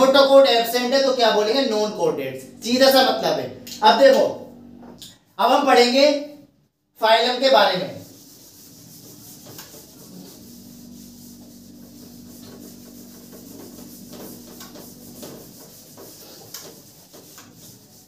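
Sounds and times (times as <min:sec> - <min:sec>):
faint low hum: 0:01.0 - 0:05.1, 0:08.9 - 0:15.8
writing scratching on a board: 0:08.0 - 0:18.0.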